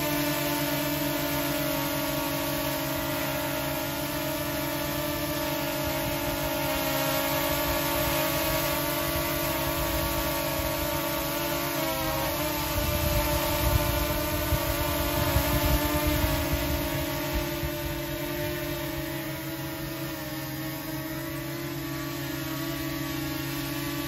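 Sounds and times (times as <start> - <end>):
drone hovering buzzing whine: 0.0 - 24.0.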